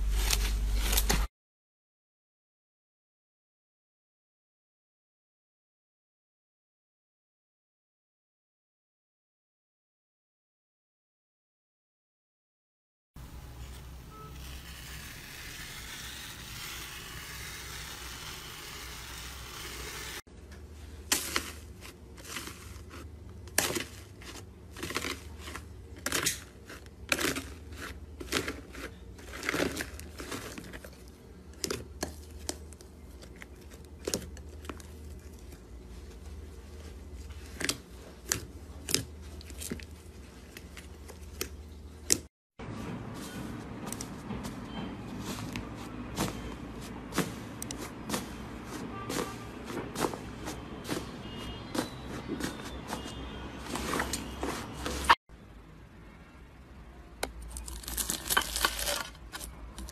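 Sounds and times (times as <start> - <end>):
foamy slime crackling: 13.7 - 20.3.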